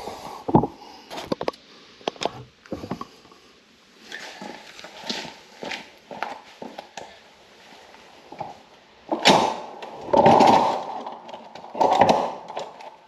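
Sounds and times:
soft scuffing footsteps: 4.0s - 8.7s.

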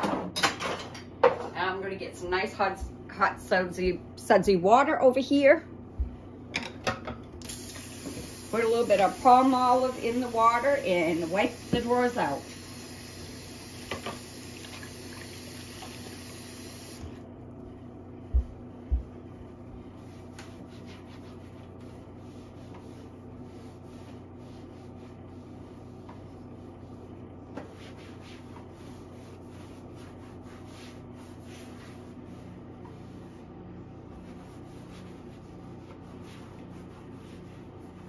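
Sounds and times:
washing machine humming: 0.0s - 38.0s
cloth wiping in drawer: 19.8s - 27.0s, 27.6s - 38.0s.

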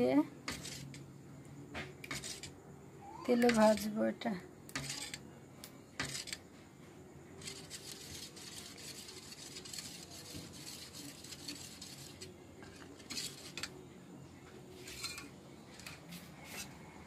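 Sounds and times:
spoon stirring batter in bowl: 0.4s - 1.0s, 2.0s - 2.6s, 3.4s - 3.9s, 4.7s - 6.5s, 7.4s - 13.8s.

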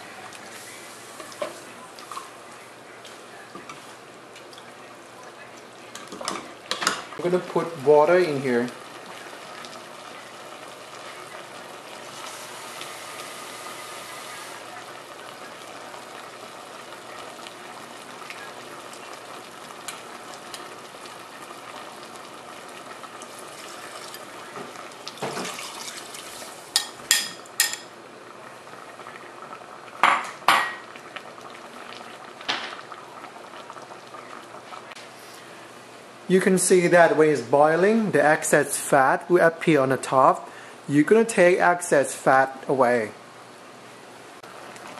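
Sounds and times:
sauce bubbling in a pot: 0.0s - 35.1s, 44.4s - 44.9s
spoon clinking dishes: 26.8s - 27.9s.

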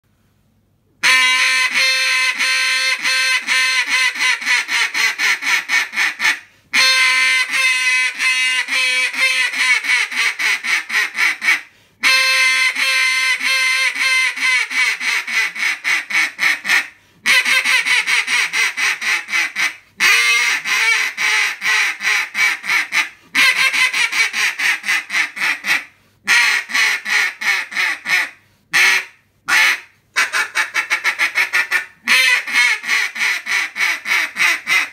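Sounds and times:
duck call rapid quacks: 1.0s - 34.9s.

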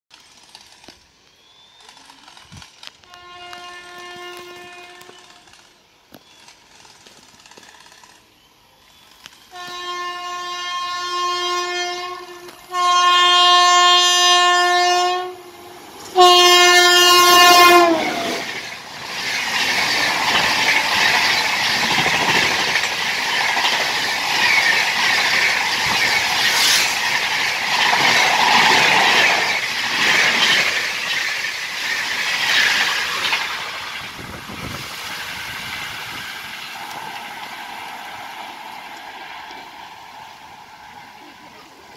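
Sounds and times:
train coaches rumbling past: 0.2s - 41.9s
locomotive horn blasts: 3.0s - 5.5s, 9.5s - 18.4s.

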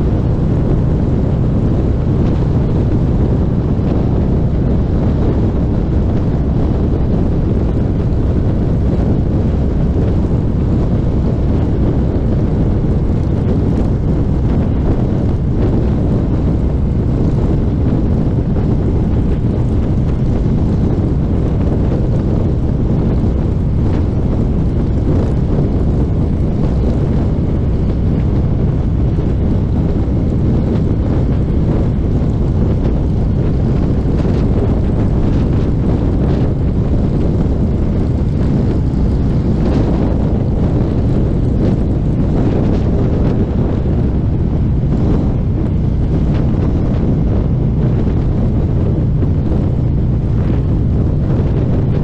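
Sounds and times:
motorcycle engine rumble: 0.0s - 52.0s
wind buffeting microphone: 0.0s - 52.0s.

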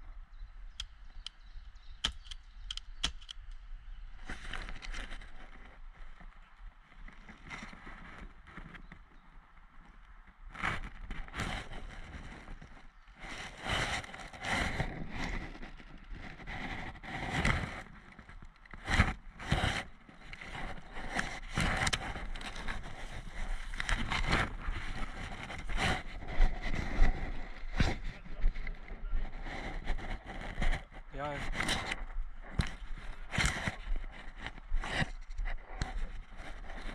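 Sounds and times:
twigs cracking: 0.8s - 6.4s, 10.8s - 30.9s, 31.5s - 36.9s
foliage brushing clothing: 18.9s - 30.8s
footsteps on dry leaves: 19.5s - 30.6s.

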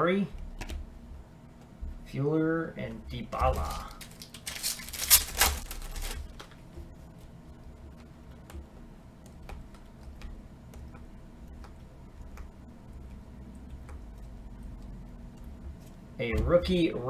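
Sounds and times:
wrapper rustling and crinkling: 3.6s - 6.4s.

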